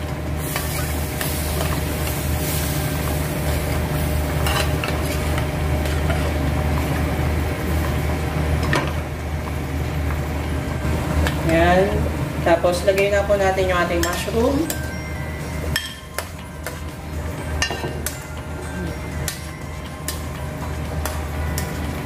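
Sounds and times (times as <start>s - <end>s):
light sizzle: 0.0s - 22.0s.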